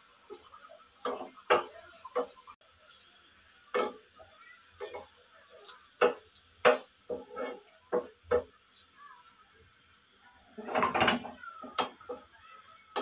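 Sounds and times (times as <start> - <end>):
onion sizzling in oil: 0.0 - 13.0
spatula scraping a pan: 0.3 - 2.5, 3.7 - 4.1, 4.8 - 5.2, 6.0 - 8.6, 10.5 - 13.0.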